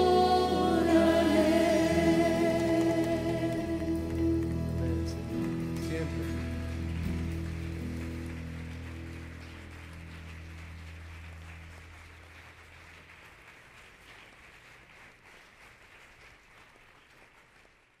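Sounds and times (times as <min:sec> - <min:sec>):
low keyboard chord: 0:00.0 - 0:12.0
congregation applauding: 0:00.0 - 0:18.0.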